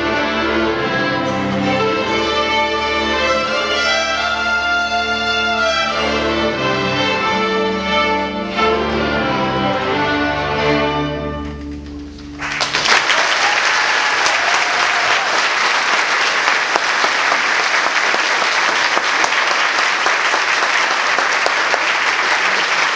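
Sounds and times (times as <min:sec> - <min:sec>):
audience applause: 0:11.4 - 0:22.9.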